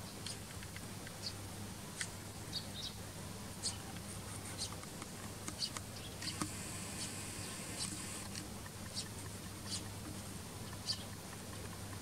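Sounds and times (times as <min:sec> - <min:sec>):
sparrows chirping: 0:00.0 - 0:12.0
high twittering: 0:05.6 - 0:10.0.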